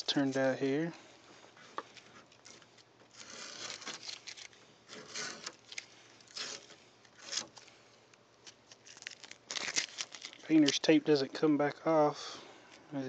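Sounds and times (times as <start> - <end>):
tape ripping off a bumper: 2.3 - 7.7, 8.4 - 10.8.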